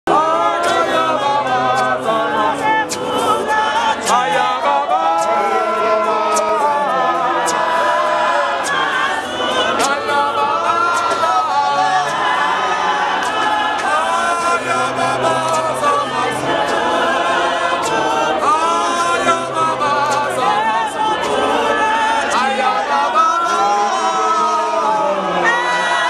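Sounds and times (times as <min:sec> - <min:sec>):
choir singing unaccompanied: 0:00.1 - 0:26.0
sharp clicks: 0:08.6 - 0:10.2.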